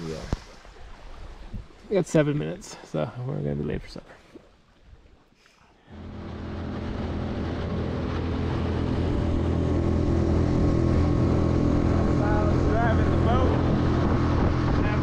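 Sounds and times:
outboard motor running: 5.9 - 15.0.

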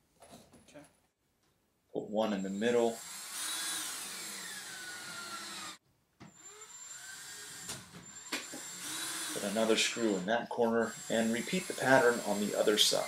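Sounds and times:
cordless drill driving screw: 2.9 - 10.2, 10.8 - 13.0.

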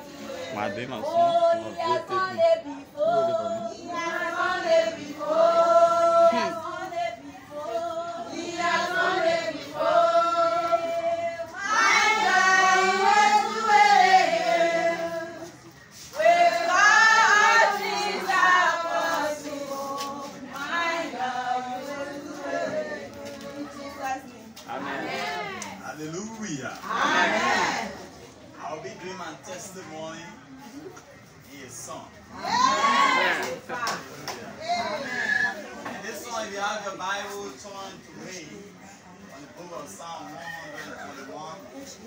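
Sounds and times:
congregation singing a hymn: 0.0 - 26.0, 26.8 - 28.1.

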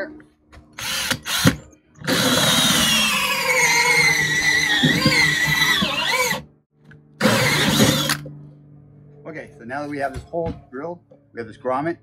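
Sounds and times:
cordless drill cutting plastic: 0.8 - 6.5, 7.2 - 8.2.

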